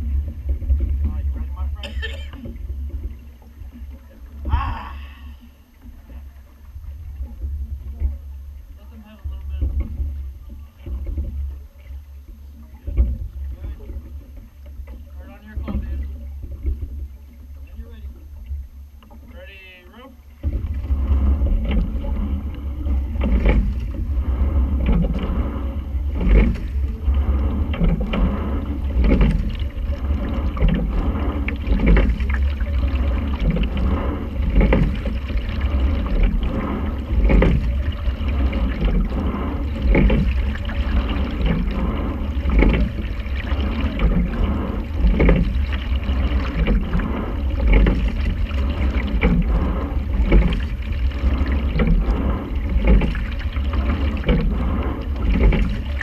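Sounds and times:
water running along hull: 0.0s - 56.0s
oars knocking in oarlocks: 20.4s - 56.0s.

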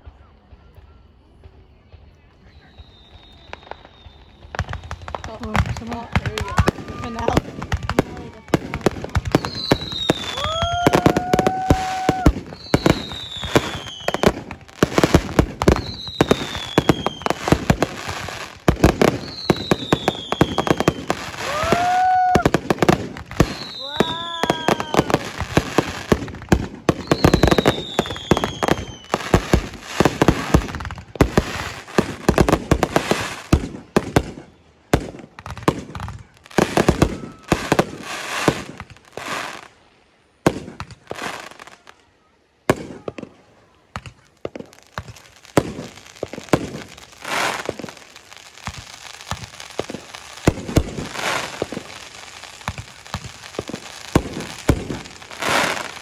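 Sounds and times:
fireworks bursting and crackling: 0.0s - 56.0s
firework falling whistle: 2.4s - 5.6s, 9.2s - 14.6s, 15.6s - 26.2s, 26.9s - 30.8s, 36.7s - 38.1s.

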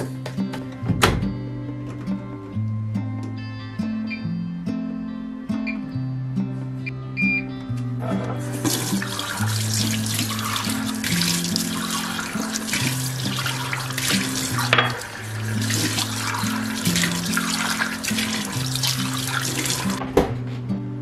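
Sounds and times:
guitar background music: 0.0s - 21.0s
short electronic beep: 6.8s - 7.5s
mugs rinsed under water: 8.4s - 20.0s
tap water running into sink: 8.4s - 20.0s.

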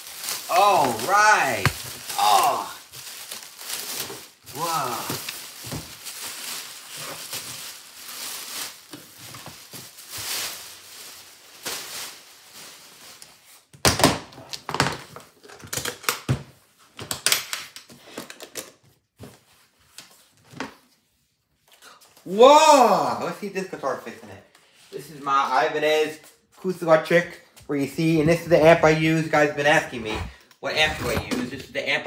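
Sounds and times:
plastic wrapping crinkling: 0.0s - 13.7s, 27.8s - 31.4s.

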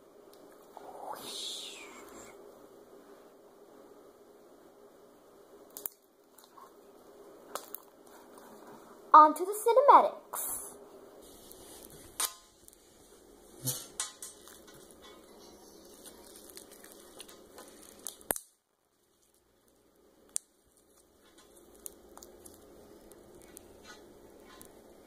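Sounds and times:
slime squishing by hand: 13.6s - 24.8s.

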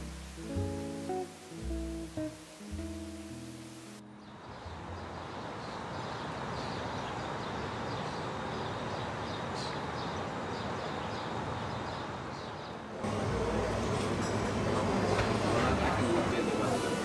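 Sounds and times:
background hiss: 0.0s - 4.3s
small birds chirping: 4.1s - 12.9s
indoor hubbub: 12.8s - 17.0s.

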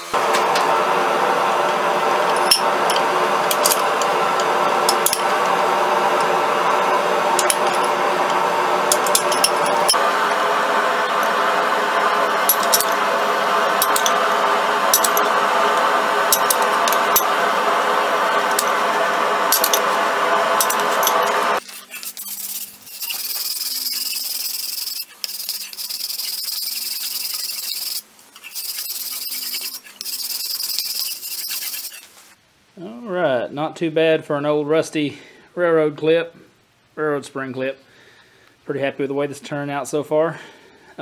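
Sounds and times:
steady rushing noise: 0.2s - 21.6s
file scraping steel blade: 13.7s - 14.2s, 14.9s - 15.4s, 20.6s - 32.1s.

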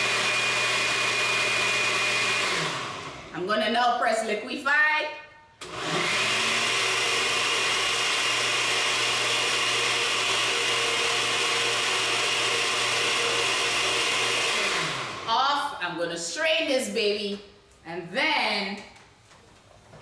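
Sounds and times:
blender running: 0.0s - 3.5s, 5.6s - 15.5s.

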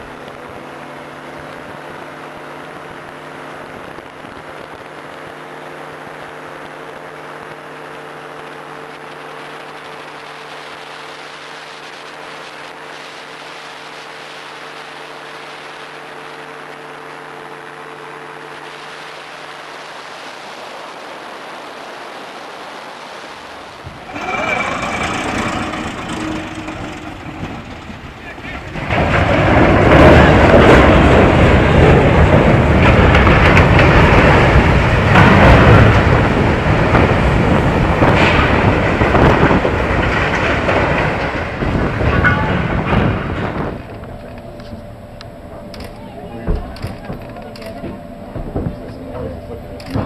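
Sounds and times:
small aircraft engine drone: 0.0s - 39.0s, 43.2s - 50.0s
wind rush over microphone: 27.5s - 45.7s.

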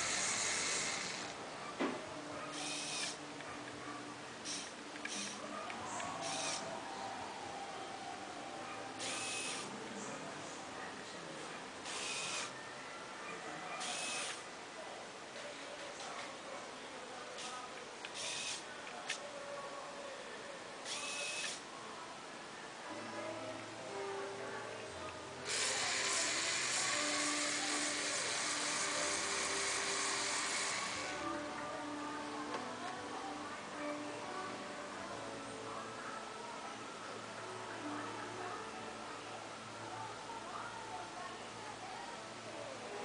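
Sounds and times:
plastic gears whirring: 0.0s - 1.4s, 2.6s - 3.2s, 4.5s - 5.4s, 11.9s - 12.5s, 13.8s - 14.4s, 18.1s - 19.2s, 25.5s - 31.2s
background music: 0.0s - 14.8s, 17.8s - 43.0s.

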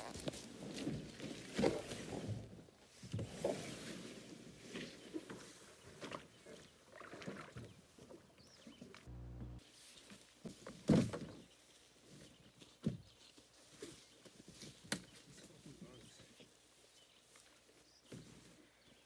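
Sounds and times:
rustling in grass: 9.1s - 19.0s.

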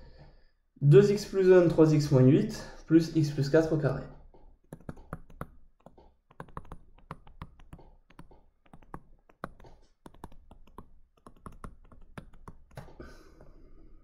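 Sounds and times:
stylus clicking on tablet: 4.6s - 13.0s.

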